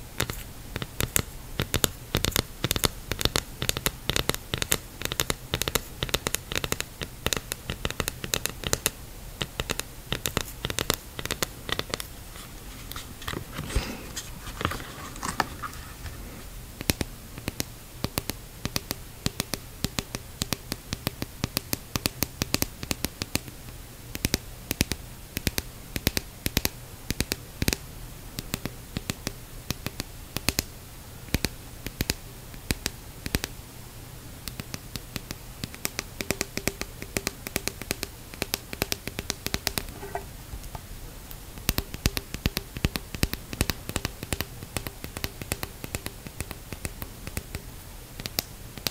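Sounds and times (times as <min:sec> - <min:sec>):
scratching and rubbing on plastic: 0:01.7 - 0:16.5, 0:39.5 - 0:40.4.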